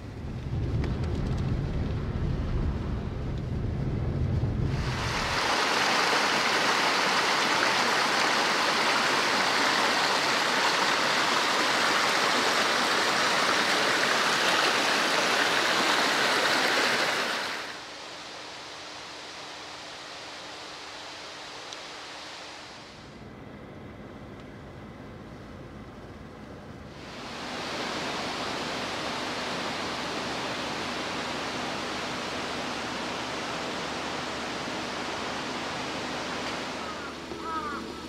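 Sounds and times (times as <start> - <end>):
steady hiss: 4.4 - 23.5, 26.9 - 38.0
stream rushing over stones: 4.7 - 18.0, 27.0 - 37.7.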